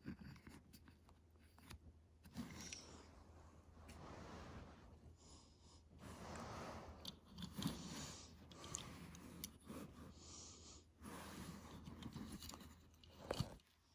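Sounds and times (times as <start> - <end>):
faint breaths: 3.9 - 12.1.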